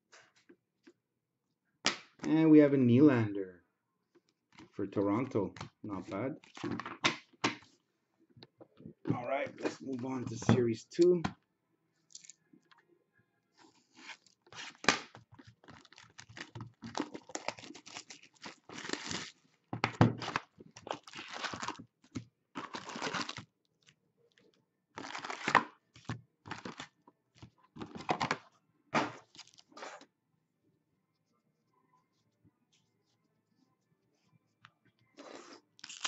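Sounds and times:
wrapping crinkling: 0:13.8 - 0:19.4, 0:20.2 - 0:27.0, 0:29.2 - 0:29.7, 0:35.8 - 0:36.0.

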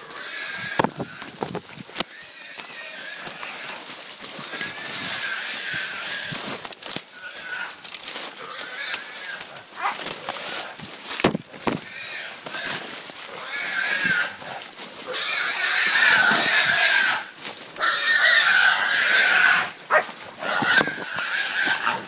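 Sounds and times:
boar squealing: 0:00.0 - 0:01.4, 0:02.0 - 0:06.4, 0:07.1 - 0:07.8, 0:08.4 - 0:10.8, 0:11.8 - 0:22.0
knocks and rustles: 0:00.8 - 0:02.0, 0:10.8 - 0:11.9
dogs barking: 0:09.7 - 0:10.1, 0:19.6 - 0:20.9.

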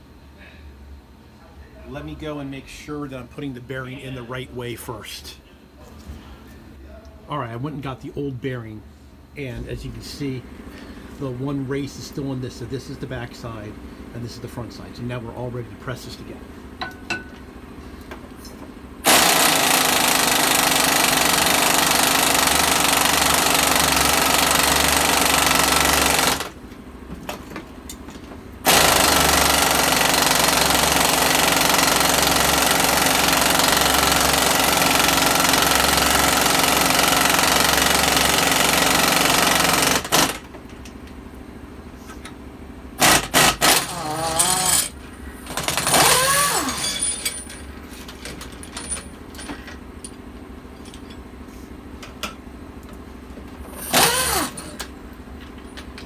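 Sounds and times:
impact wrench hammering: 0:16.8 - 0:17.4, 0:19.0 - 0:26.6, 0:28.6 - 0:40.6, 0:43.0 - 0:47.6, 0:53.6 - 0:54.9.

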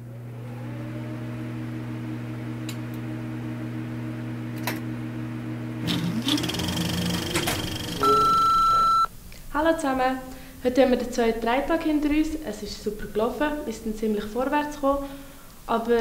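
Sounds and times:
low whirring hum: 0:00.0 - 0:09.2
rising tone: 0:05.8 - 0:09.1.

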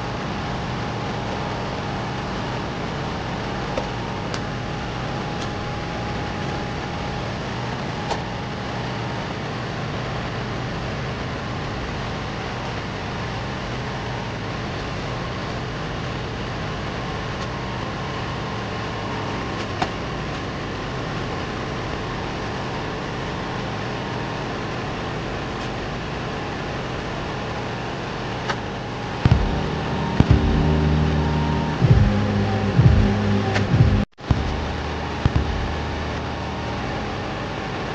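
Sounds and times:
air conditioning unit rushing air: 0:00.0 - 0:37.9
steady pitched tones: 0:28.8 - 0:37.6.

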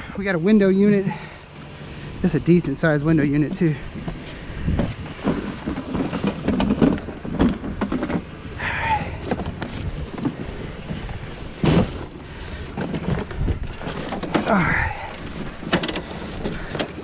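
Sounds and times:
objects knocking and clattering: 0:04.0 - 0:08.4, 0:12.7 - 0:17.0.

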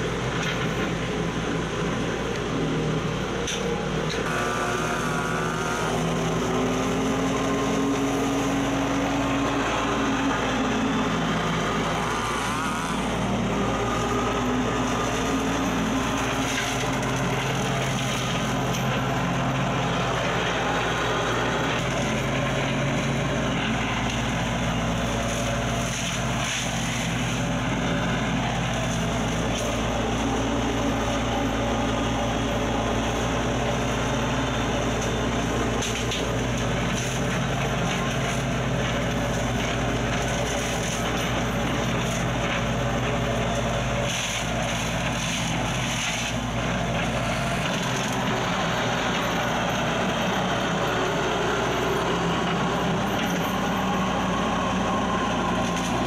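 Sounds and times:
diesel engine drone: 0:00.0 - 0:56.0
flail mower shredding brush: 0:00.0 - 0:56.0.

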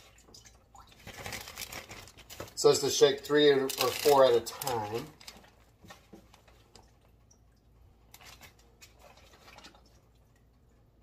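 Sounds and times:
plastic bag rustling: 0:01.0 - 0:06.7.

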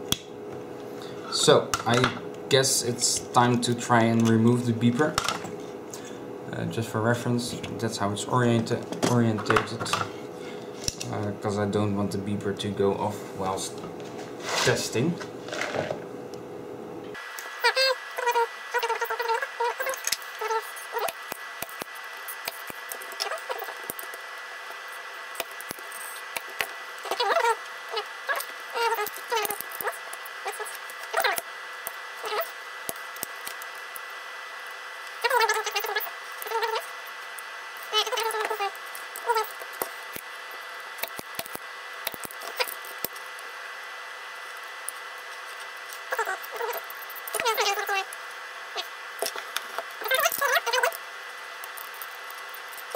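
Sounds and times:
desoldering pump clicks and snaps: 0:00.1 - 0:00.3.

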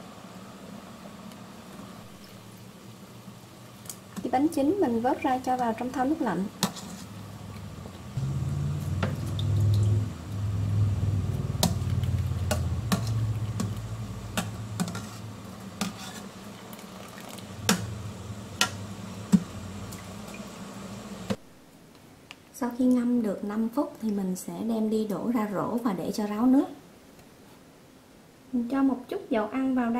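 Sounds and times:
water boiling in pot: 0:00.0 - 0:21.5
water dripping: 0:08.7 - 0:14.8, 0:16.6 - 0:20.5.

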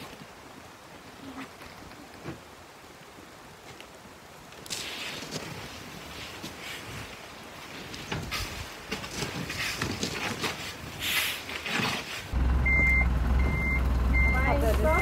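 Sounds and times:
outdoor noise: 0:00.0 - 0:15.0
low engine rumble: 0:12.4 - 0:15.0
truck back-up alarm beeping: 0:12.4 - 0:15.0.

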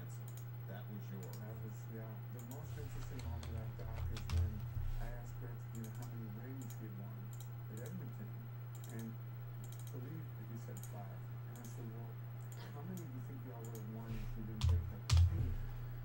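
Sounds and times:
steady electrical hum: 0:00.0 - 0:16.0.

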